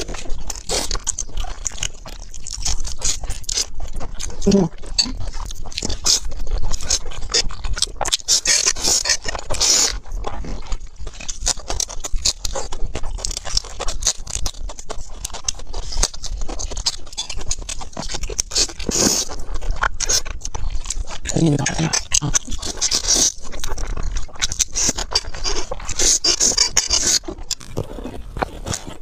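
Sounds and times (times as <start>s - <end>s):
slurping noodles: 0.0s - 11.4s, 15.8s - 29.0s
wet chewing: 0.0s - 29.0s.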